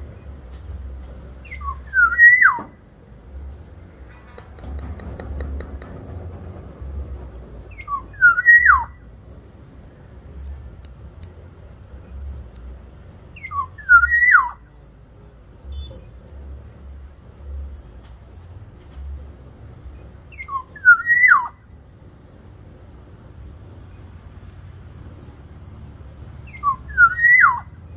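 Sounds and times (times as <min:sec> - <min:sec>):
bird whistling fluty song: 0:01.4 - 0:02.7, 0:07.7 - 0:09.0, 0:13.4 - 0:14.6, 0:20.3 - 0:21.6, 0:26.4 - 0:27.9.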